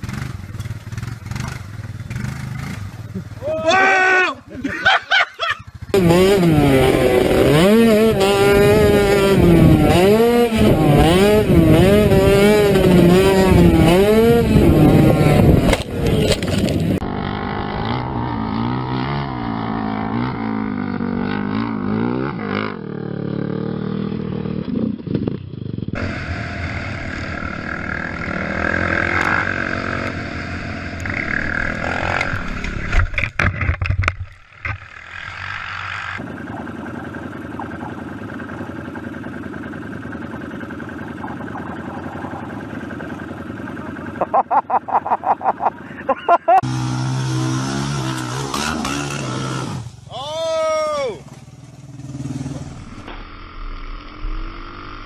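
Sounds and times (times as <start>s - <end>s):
quad engine revving: 0.0s - 3.9s, 5.8s - 33.4s, 34.6s - 50.1s, 51.3s - 55.0s
quads running steadily: 0.0s - 33.2s, 34.6s - 55.0s.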